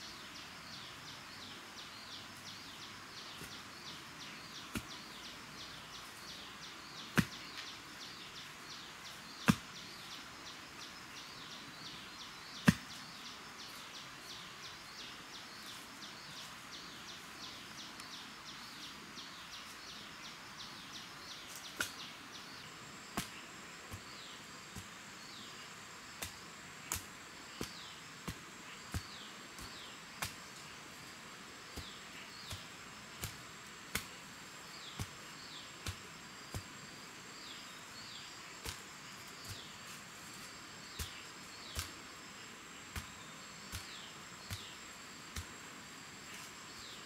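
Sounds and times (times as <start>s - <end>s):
wooden pole knocking into soil: 4.7s - 5.0s, 7.1s - 7.4s, 9.4s - 9.8s, 12.6s - 13.0s, 31.7s - 34.2s, 34.8s - 36.8s, 40.9s - 42.0s, 42.9s - 45.5s.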